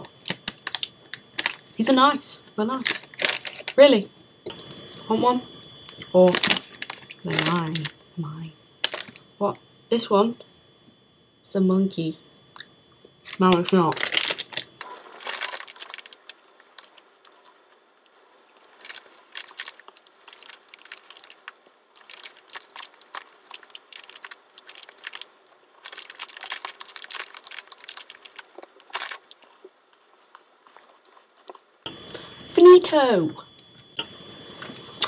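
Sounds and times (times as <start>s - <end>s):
biscuits crunching while chewed: 12.6s - 32.3s.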